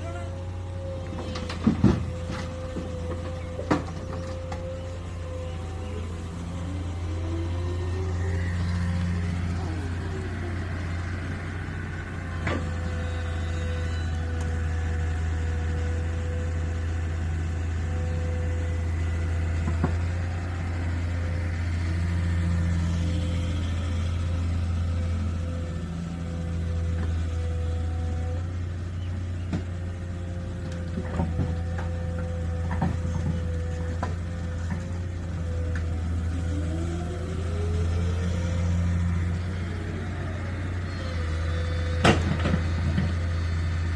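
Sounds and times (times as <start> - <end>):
rising whine: 0.0 - 27.2, 34.5 - 42.1
excavator working: 0.0 - 43.9
tractor engine idling: 0.0 - 43.9.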